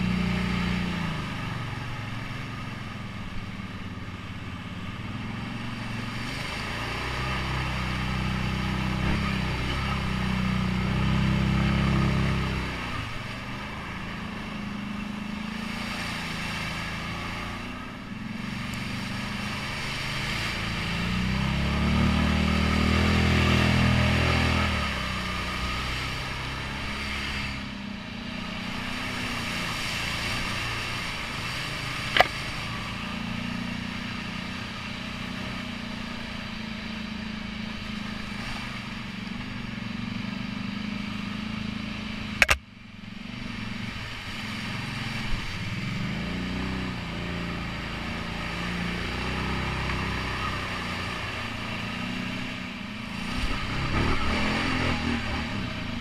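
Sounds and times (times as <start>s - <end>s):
atv engine revving: 0.0s - 56.0s
sharp knocks: 42.4s - 42.6s.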